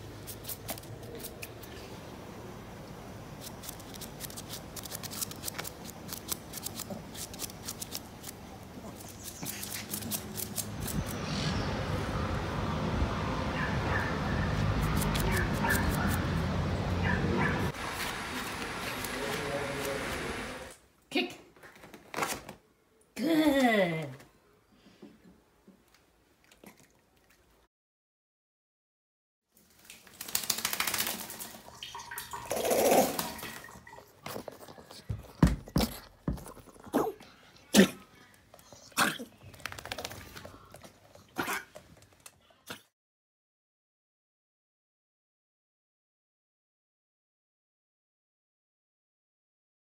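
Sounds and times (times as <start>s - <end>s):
steady low rumble: 10.7s - 13.4s
dog shaking wet coat: 29.7s - 33.8s, 39.5s - 40.4s.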